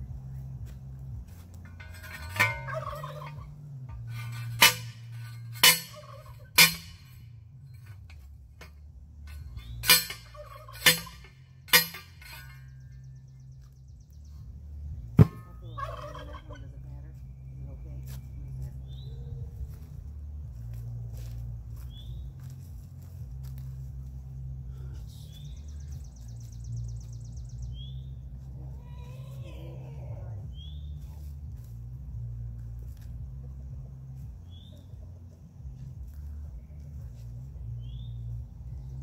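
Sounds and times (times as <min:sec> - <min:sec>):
post driver hammering steel post: 0:01.6 - 0:13.1, 0:15.1 - 0:15.8.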